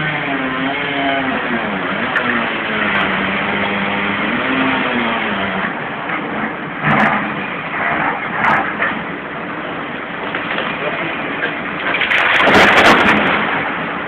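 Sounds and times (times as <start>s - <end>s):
excavator diesel engine under load: 0.0s - 14.0s
short loud bursts of noise: 11.9s - 14.0s.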